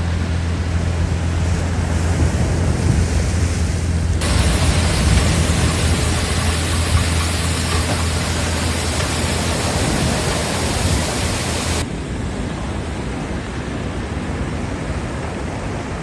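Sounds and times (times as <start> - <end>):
steady rushing noise: 0.0 - 16.0
tractor engine running: 4.1 - 11.8.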